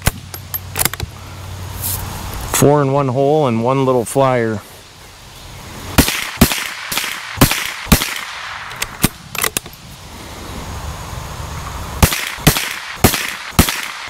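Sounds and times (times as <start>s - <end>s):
rifle shots: 6.0s - 9.5s, 12.0s - 14.0s
faint gunshot cracks: 12.0s - 14.0s.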